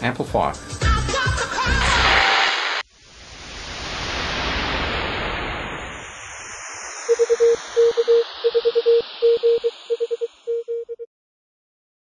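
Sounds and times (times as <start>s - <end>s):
synthetic whoosh with shimmering hiss: 2.8s - 10.0s
morse code beeps: 7.1s - 11.1s.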